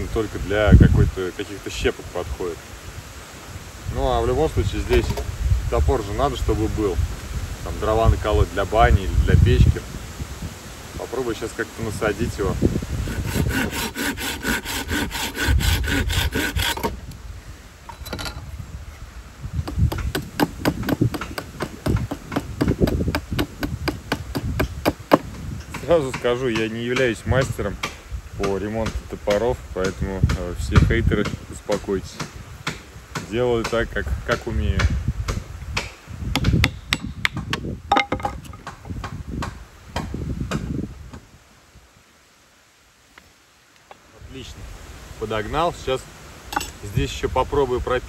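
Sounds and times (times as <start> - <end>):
sharp knocks of wood and metal: 4.9 - 5.3, 19.6 - 31.4, 32.2 - 40.7, 46.5 - 46.8
dull thuds: 19.6 - 26.2
axe head knocked onto handle: 36.4 - 38.6.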